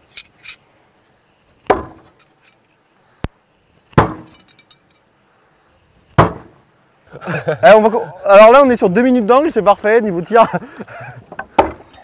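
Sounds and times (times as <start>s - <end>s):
faint metal clinks: 0.0s - 0.7s, 1.4s - 2.8s, 3.7s - 5.2s
knives hitting wooden target: 1.6s - 2.2s, 3.9s - 4.5s.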